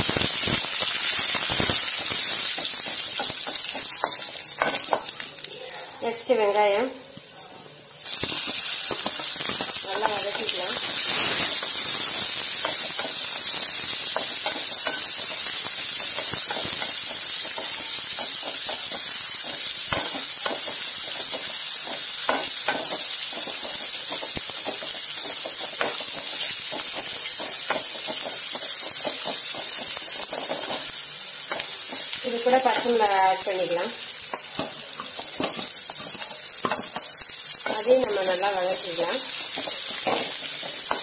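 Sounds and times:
onions sizzling in hot oil: 0:00.0 - 0:41.0.

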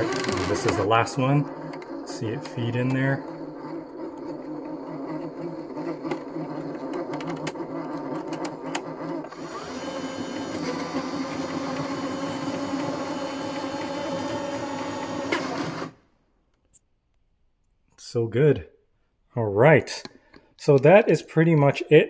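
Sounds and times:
feeder motor whirring: 0:00.0 - 0:16.0.

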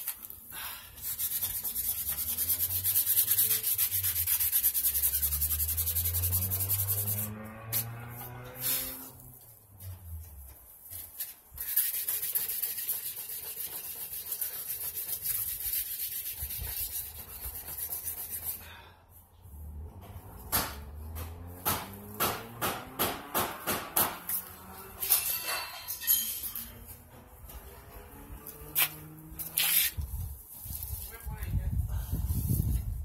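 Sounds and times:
sanding strokes on painted metal: 0:00.0 - 0:09.5, 0:10.2 - 0:18.8, 0:28.1 - 0:31.5.

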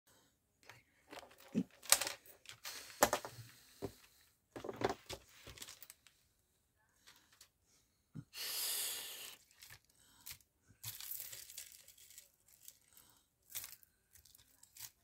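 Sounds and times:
rustling materials: 0:00.7 - 0:06.2, 0:09.4 - 0:15.0.

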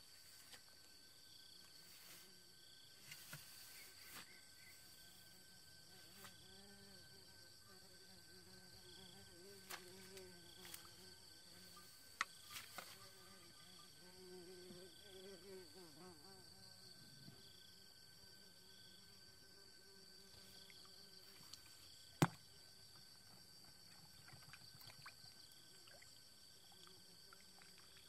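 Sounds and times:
insect chirping: 0:00.0 - 0:28.0.

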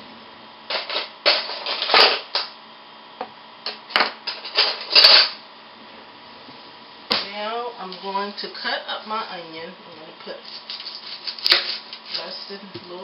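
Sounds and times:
rustling and scraping: 0:09.9 - 0:13.0.

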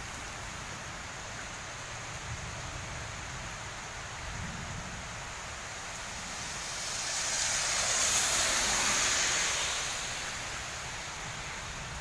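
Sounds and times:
rain hiss on wet road: 0:00.0 - 0:12.0
vehicle passing on wet road: 0:02.9 - 0:12.0.

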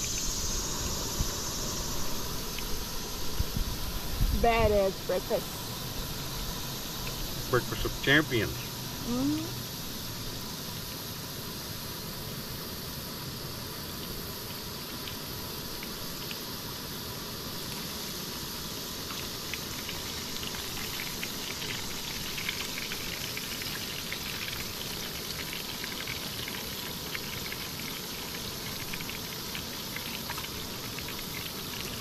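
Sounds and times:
fish frying in hot oil: 0:00.0 - 0:32.0.

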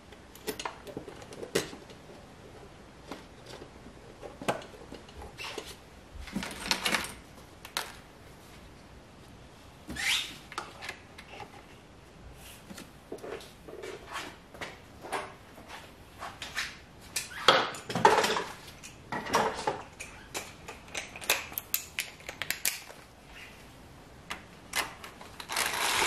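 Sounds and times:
plastic parts clicking and knocking: 0:00.1 - 0:02.1, 0:03.0 - 0:05.7, 0:17.2 - 0:23.0
squeaky scrape: 0:09.9 - 0:10.4.

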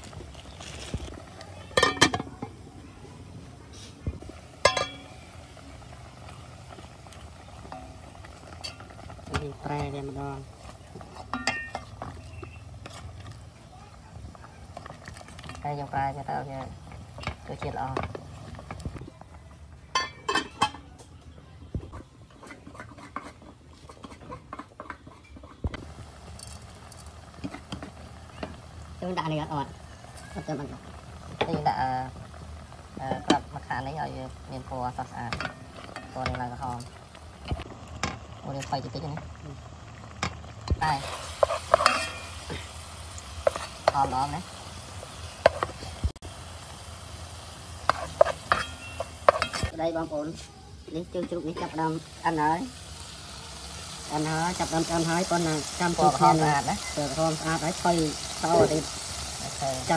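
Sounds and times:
pot simmering: 0:00.0 - 0:59.9
metal pot and lid clinking: 0:01.7 - 0:02.6, 0:04.6 - 0:05.4, 0:07.6 - 0:10.0, 0:11.1 - 0:13.0, 0:19.9 - 0:21.0, 0:35.2 - 0:37.0, 0:40.1 - 0:42.8, 0:47.8 - 0:49.7
metal pot knocked by utensil: 0:01.8 - 0:02.5, 0:04.6 - 0:05.2, 0:11.3 - 0:11.8, 0:19.9 - 0:20.9.

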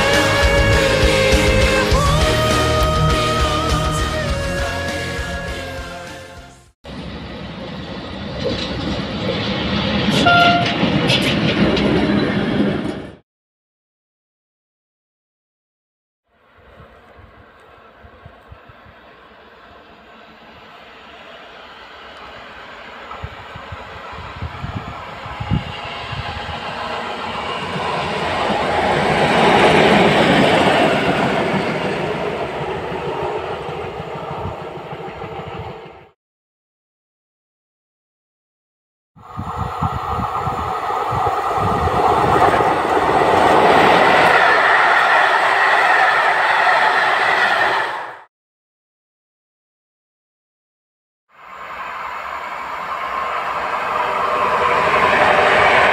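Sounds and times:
diesel locomotive engine hum: 0:00.0 - 0:13.2, 0:16.3 - 0:36.2, 0:39.2 - 0:48.3, 0:51.4 - 0:55.9
short high tone: 0:10.1 - 0:10.9.

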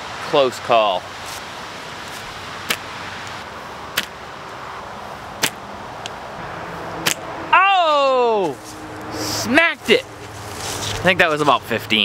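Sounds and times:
slingshot shots snapping: 0:05.4 - 0:05.6, 0:07.0 - 0:07.2.

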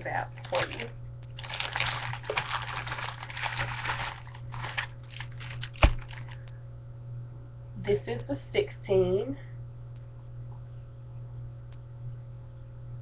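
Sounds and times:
hair weave rustling and crinkling: 0:00.0 - 0:06.4.

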